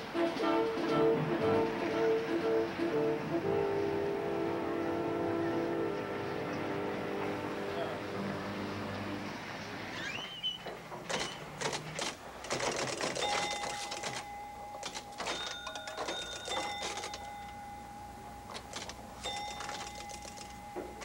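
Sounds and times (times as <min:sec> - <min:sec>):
pinball machine clicking and rattling: 0:11.0 - 0:17.6, 0:18.5 - 0:21.0.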